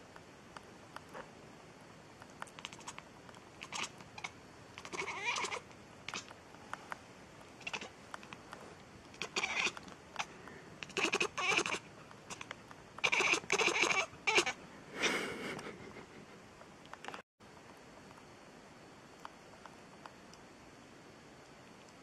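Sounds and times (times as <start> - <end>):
cat mewing: 3.6 - 6.3, 7.6 - 7.9, 9.2 - 14.6.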